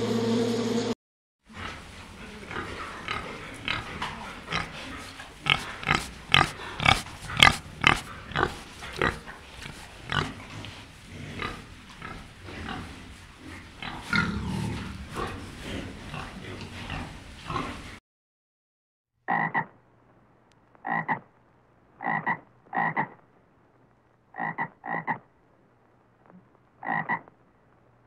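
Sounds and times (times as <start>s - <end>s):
pig grunting: 1.5s - 18.0s.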